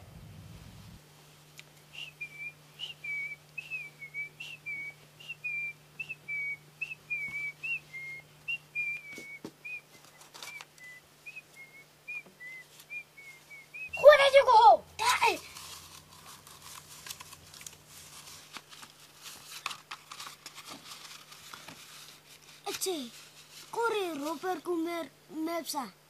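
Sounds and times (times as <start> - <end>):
faint steady hum: 0.0 - 26.0
short high whistled chirps: 1.9 - 14.3.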